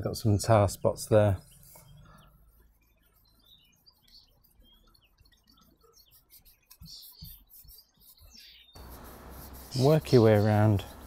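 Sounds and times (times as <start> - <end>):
faint rubbing on chrome: 1.0 - 11.0.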